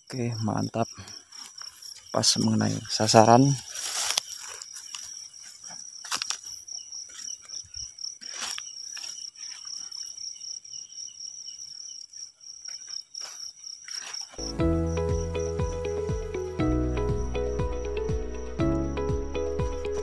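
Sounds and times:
night insects chirping: 0.0s - 20.0s.

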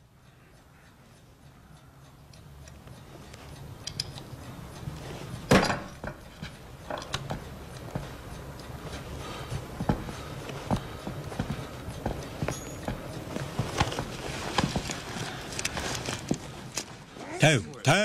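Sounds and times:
footsteps on wooden floor: 9.5s - 16.6s.

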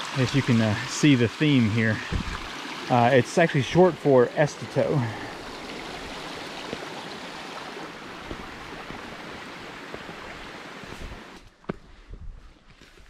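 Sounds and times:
river water rushing: 0.0s - 11.4s
footsteps on grass: 8.2s - 13.0s.

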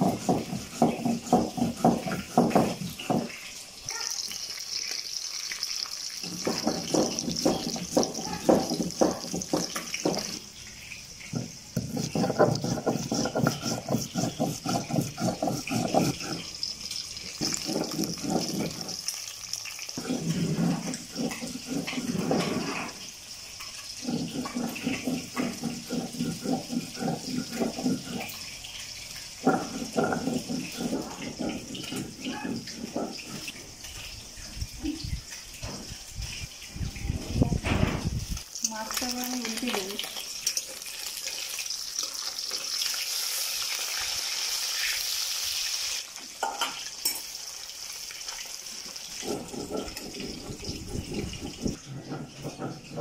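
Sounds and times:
fish frying in hot oil: 0.0s - 53.0s.

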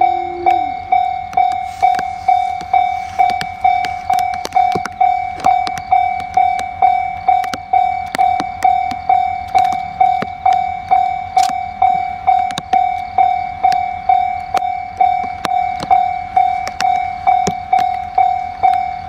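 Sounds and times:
level-crossing warning bell: 0.0s - 19.0s.

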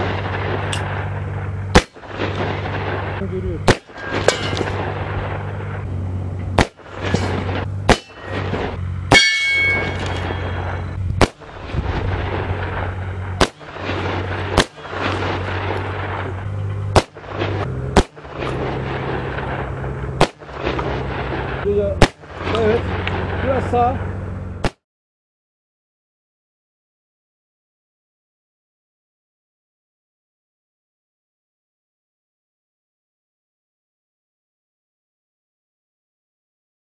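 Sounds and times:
gunshots: 0.0s - 5.9s, 6.6s - 23.7s
metallic ringing: 3.8s - 4.8s, 7.0s - 8.5s, 9.1s - 11.0s.

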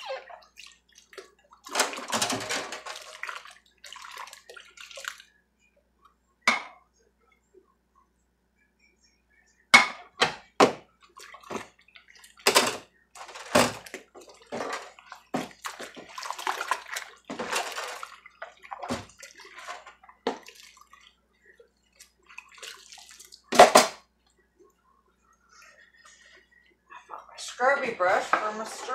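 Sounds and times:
water splashing and sloshing: 0.0s - 5.4s, 10.2s - 24.1s
dishes knocking: 6.5s - 6.8s.

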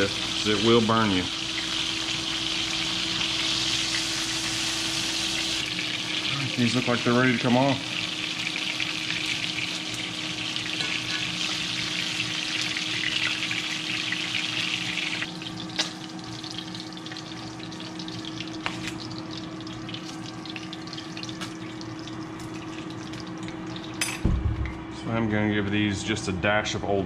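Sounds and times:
fish sizzling in hot oil: 0.0s - 24.1s
steady low hum: 15.0s - 27.0s.

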